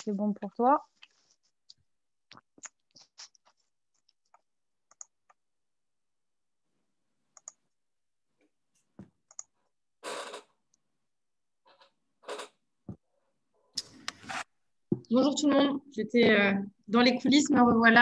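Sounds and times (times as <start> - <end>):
computer mouse and keyboard clicks: 2.6 - 5.4, 7.3 - 7.6, 9.2 - 9.6.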